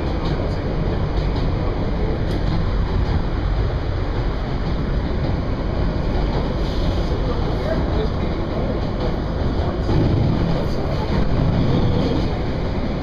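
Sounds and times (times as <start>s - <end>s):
subway train wheels on track: 0.0s - 13.0s.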